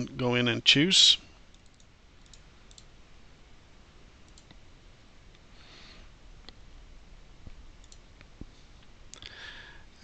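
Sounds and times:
low background hiss: 0:00.0 - 0:10.0
computer mouse clicks: 0:01.5 - 0:02.9, 0:04.3 - 0:04.6, 0:07.8 - 0:08.3.

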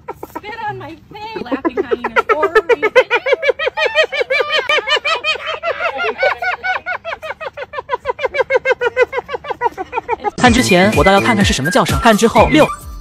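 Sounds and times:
hyenas giggling: 0:00.0 - 0:11.6.

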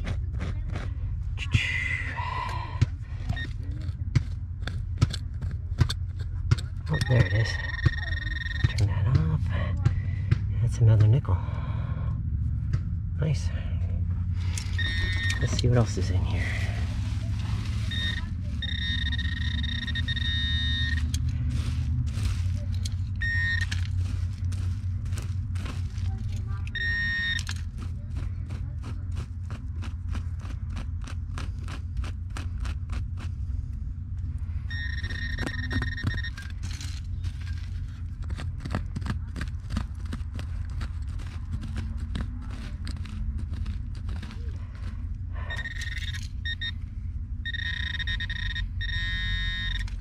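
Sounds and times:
low rumble: 0:00.0 - 0:50.0
metal detector tone: 0:06.8 - 0:09.0, 0:14.5 - 0:24.2, 0:26.6 - 0:27.6, 0:34.7 - 0:37.6, 0:45.4 - 0:46.8, 0:47.4 - 0:50.0
short electronic tone: 0:14.7 - 0:15.6, 0:17.9 - 0:21.2, 0:34.7 - 0:36.5, 0:47.5 - 0:50.0
digging through sawdust: 0:15.4 - 0:27.1.

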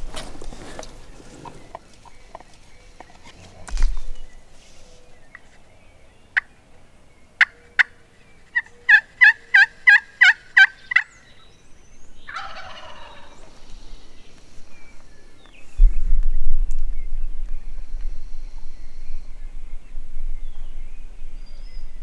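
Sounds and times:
turkey clucks: 0:00.8 - 0:03.7, 0:06.4 - 0:06.6, 0:07.4 - 0:11.1, 0:12.3 - 0:13.6
rattling turkey gobble: 0:07.4 - 0:11.0, 0:12.3 - 0:13.4
turkey yelps: 0:08.6 - 0:11.0, 0:12.3 - 0:13.4.

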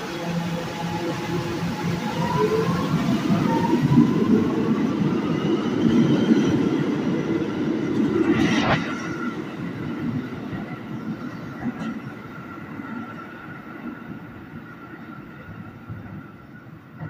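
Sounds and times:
subway train wheels rumbling: 0:00.0 - 0:17.0
sharp rush of noise: 0:07.8 - 0:09.8.

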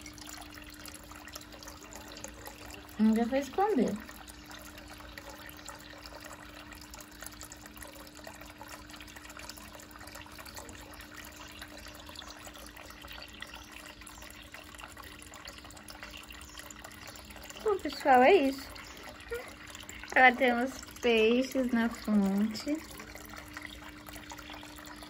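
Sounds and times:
faint steady hum: 0:00.0 - 0:25.0
fountain water splashing: 0:01.4 - 0:04.2, 0:17.5 - 0:24.2.

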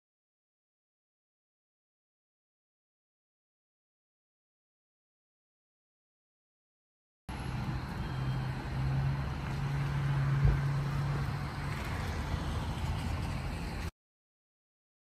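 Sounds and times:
engine humming: 0:07.3 - 0:13.9.

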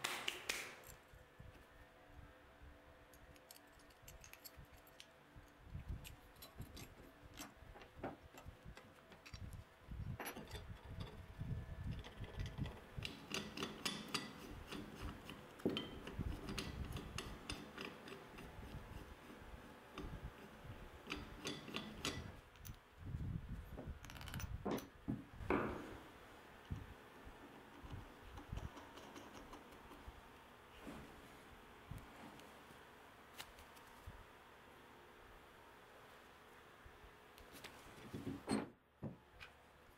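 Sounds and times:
metal parts clinking and rattling: 0:03.1 - 0:05.1, 0:05.8 - 0:18.2.

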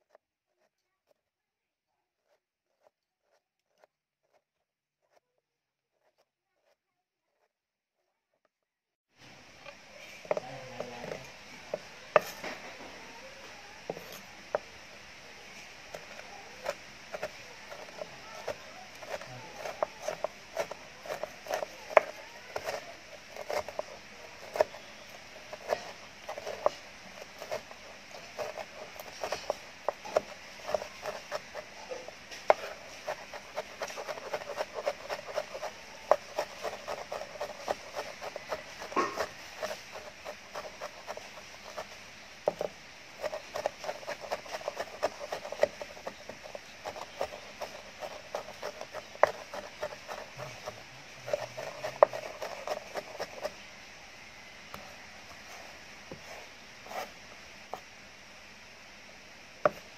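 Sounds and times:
knife chopping on wooden board: 0:16.0 - 0:53.6.

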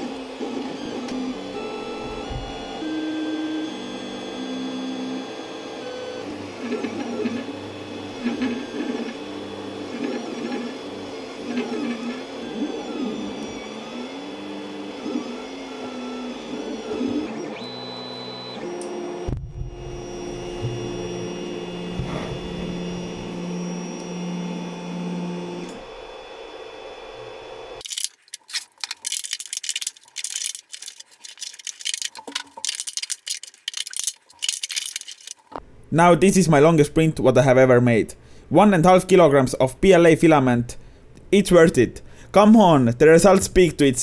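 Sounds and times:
printer stepper motors whining: 0:00.0 - 0:27.8
plastic crackling and snapping: 0:27.8 - 0:35.6.

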